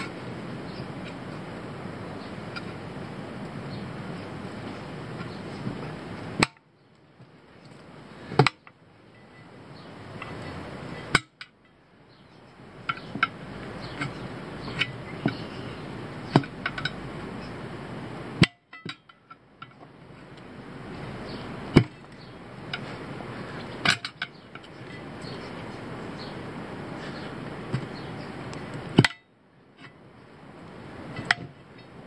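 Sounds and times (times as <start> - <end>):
tire iron knocking on wheel rim: 12.8 - 17.1, 21.3 - 22.9.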